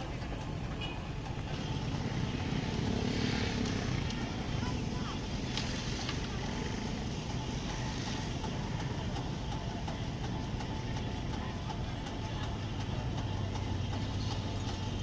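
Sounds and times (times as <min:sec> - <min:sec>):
crane engine humming: 0:00.0 - 0:15.0.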